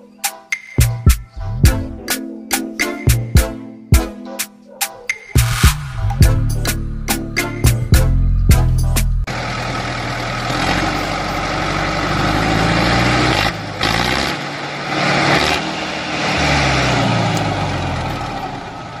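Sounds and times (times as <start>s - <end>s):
tractor engine running: 5.8s - 19.0s.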